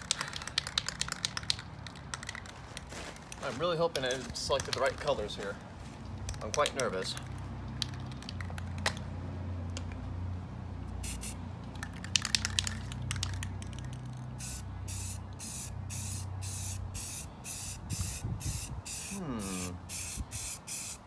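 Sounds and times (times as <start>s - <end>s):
spray can rattling: 0.0s - 2.9s, 4.4s - 5.3s, 6.2s - 9.0s, 11.0s - 21.0s
spray paint hissing: 11.0s - 21.0s.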